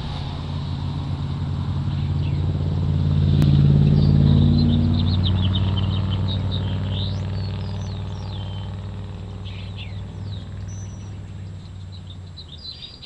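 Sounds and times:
vehicle engine humming: 0:00.0 - 0:13.0
small birds chirping: 0:01.9 - 0:02.5, 0:03.8 - 0:13.0.

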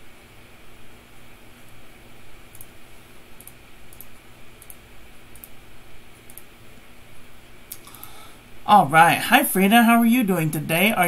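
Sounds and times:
faint low room hum: 0:00.0 - 0:11.0
computer mouse clicks: 0:02.5 - 0:02.8, 0:03.4 - 0:05.6, 0:06.2 - 0:06.5.

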